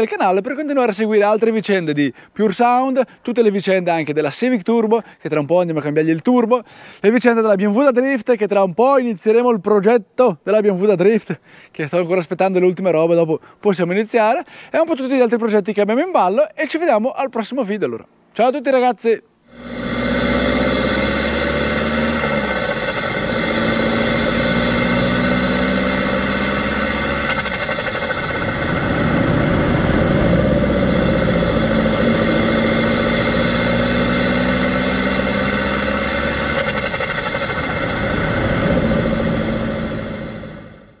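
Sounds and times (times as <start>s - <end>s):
diesel van engine revving: 19.5s - 41.0s.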